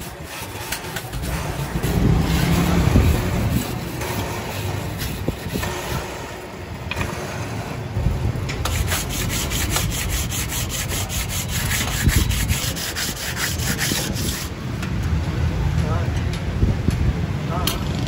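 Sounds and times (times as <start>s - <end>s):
sandpaper scrubbing metal: 0.0s - 7.8s, 8.6s - 14.5s.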